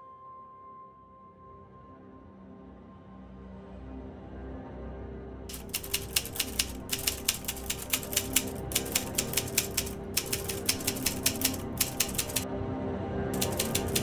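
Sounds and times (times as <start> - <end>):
typewriter keys clacking: 5.5 - 12.4, 13.4 - 14.0.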